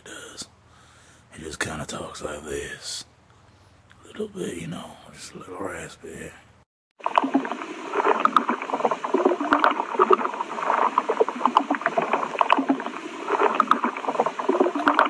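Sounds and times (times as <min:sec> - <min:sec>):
underwater bubbling and gurgling: 0:07.0 - 0:15.0.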